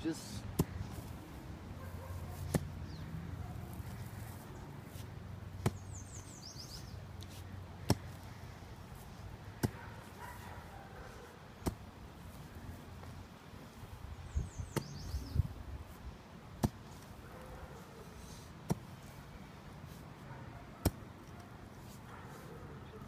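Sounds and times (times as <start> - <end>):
mattock chopping into turf: 0.4 - 1.2, 2.3 - 3.0, 3.7 - 8.3, 9.0 - 10.4, 11.6 - 13.1, 14.6 - 15.2, 16.5 - 17.1, 18.6 - 19.0, 20.8 - 22.0.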